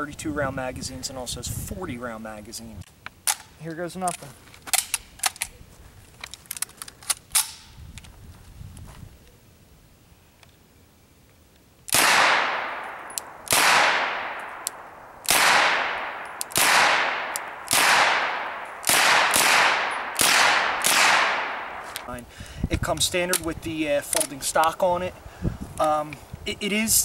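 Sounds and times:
gunshots echoing: 11.9s - 22.1s.

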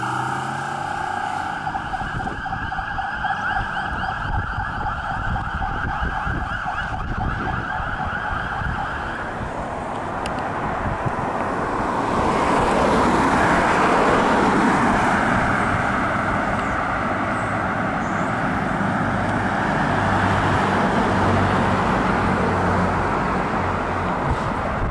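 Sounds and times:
passing road traffic: 0.0s - 24.9s
warbling siren yelp: 0.3s - 9.5s.

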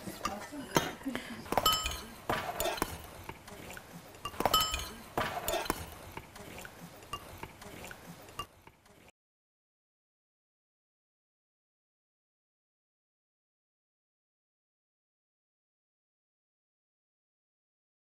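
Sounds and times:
spoons clinking against bowls: 0.0s - 3.1s, 3.7s - 6.0s, 7.0s - 8.5s.

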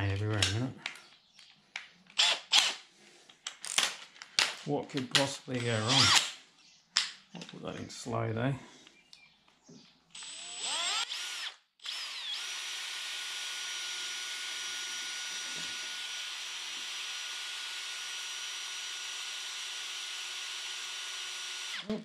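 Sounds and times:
drill stirring paint: 2.2s - 2.8s, 5.7s - 6.2s, 10.1s - 22.0s.

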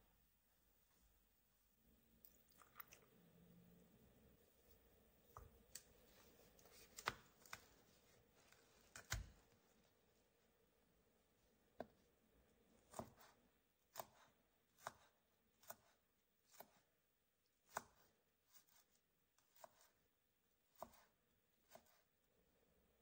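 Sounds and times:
knife chopping on wooden board: 12.9s - 15.9s, 20.7s - 21.1s.

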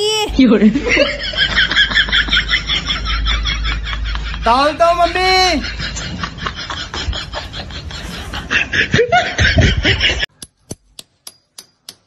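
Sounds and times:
laughter: 0.6s - 4.8s, 5.4s - 10.3s
metal spoon tapping a nail: 10.4s - 12.0s.

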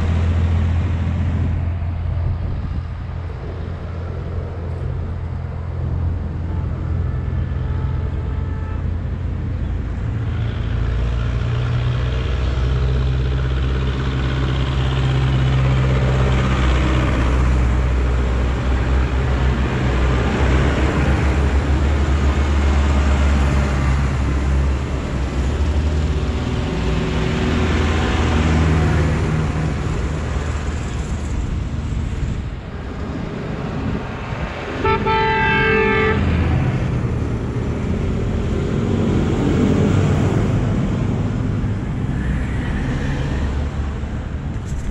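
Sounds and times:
tractor diesel engines passing: 0.0s - 44.9s
horn: 34.8s - 36.2s.

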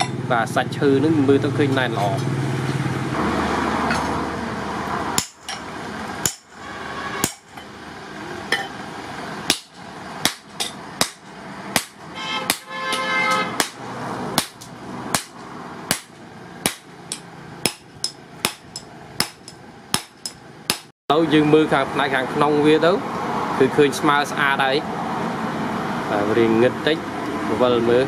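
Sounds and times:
hammer striking hot metal: 5.2s - 7.7s, 9.5s - 20.9s
metal ringing: 5.2s - 7.8s, 8.5s - 8.8s, 9.5s - 13.8s, 14.4s - 20.9s.

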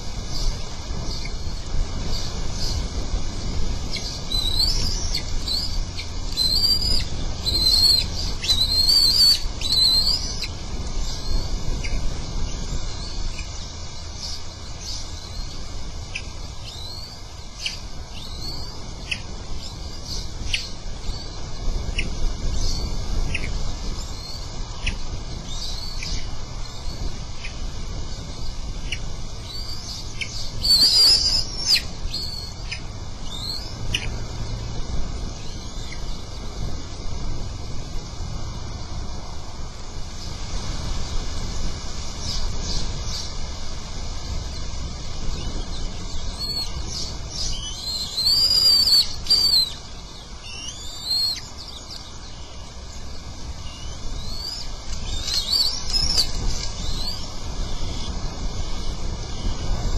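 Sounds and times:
eagles chirping calls: 3.9s - 10.6s, 29.0s - 34.2s, 46.3s - 52.4s, 53.6s - 57.2s.

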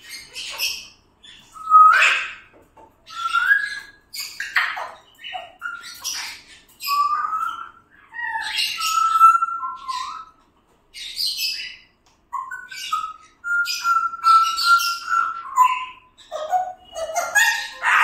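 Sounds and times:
parrot squawking and chirping: 0.0s - 18.0s
parrot whistling: 3.1s - 3.9s, 5.6s - 10.3s, 12.4s - 18.0s.

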